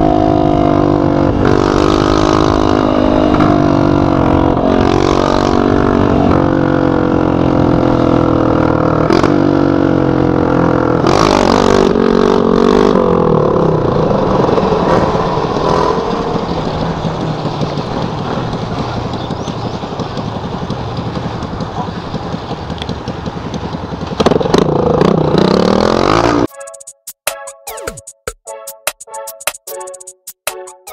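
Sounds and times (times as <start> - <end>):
dirt bike engine revving: 0.0 - 26.5
electronic music: 26.1 - 30.9.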